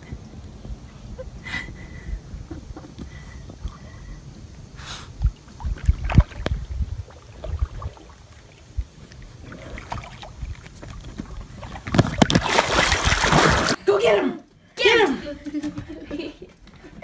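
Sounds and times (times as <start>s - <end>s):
wind buffeting microphone: 0.0s - 13.8s
water around kayak: 2.4s - 13.8s.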